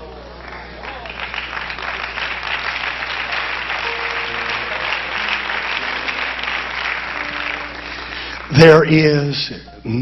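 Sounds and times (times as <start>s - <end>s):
congregation applauding: 0.0s - 9.4s
held musical notes: 3.2s - 10.0s.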